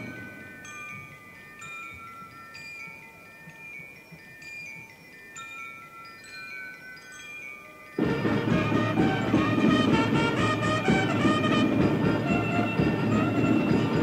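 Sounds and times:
struck tuned bells melody: 0:00.0 - 0:14.0.

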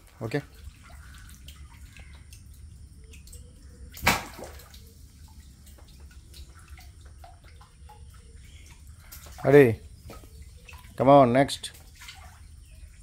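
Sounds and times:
water trickling and dripping: 0:00.0 - 0:13.0
sharp splash in water: 0:03.9 - 0:04.8.

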